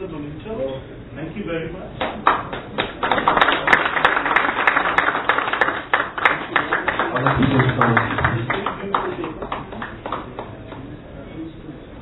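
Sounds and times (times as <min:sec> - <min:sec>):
audience applauding: 0:02.0 - 0:11.0.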